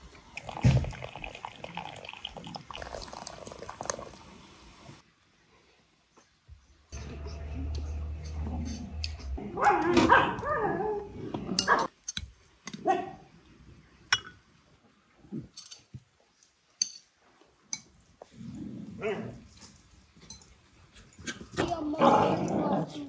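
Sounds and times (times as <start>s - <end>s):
dog growling and barking: 8.3s - 11.9s, 18.4s - 19.5s, 21.6s - 23.0s.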